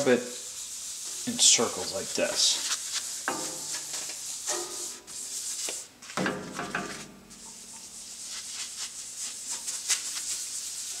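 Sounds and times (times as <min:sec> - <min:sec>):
rag rubbing on metal table: 0:00.0 - 0:05.8, 0:06.5 - 0:11.0
squeak of rag strokes: 0:07.3 - 0:11.0.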